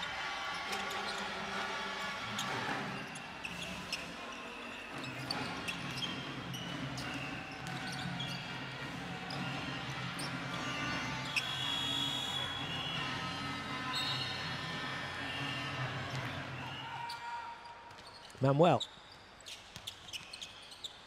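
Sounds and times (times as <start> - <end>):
arena crowd hum: 0.0 - 18.8
basketball bouncing on court: 5.0 - 9.5.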